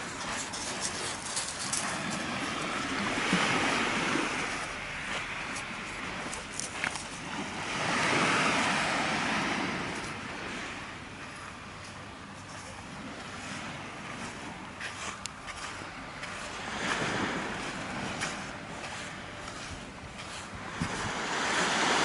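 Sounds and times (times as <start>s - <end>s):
light clicks of pebbles: 0.0s - 2.9s, 5.5s - 7.2s
waves washing up a pebble shore: 0.8s - 6.6s, 7.2s - 10.6s, 15.5s - 22.0s.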